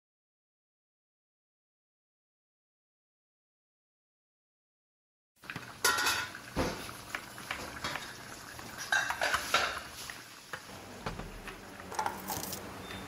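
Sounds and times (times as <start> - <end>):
steel plates and utensils clinking: 5.8 - 6.4, 8.8 - 9.9.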